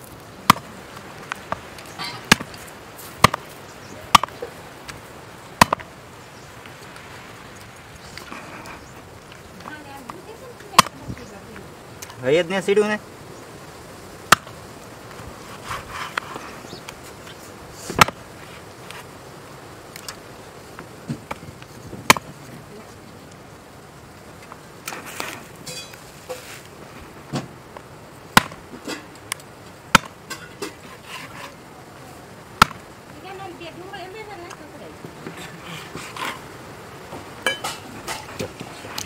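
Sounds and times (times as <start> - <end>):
knife chopping on wooden board: 4.1 - 4.4.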